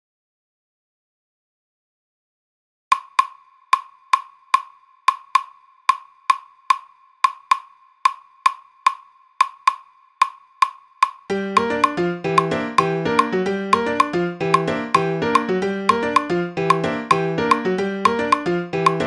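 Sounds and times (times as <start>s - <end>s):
claves tapping a rhythm: 2.9s - 19.0s.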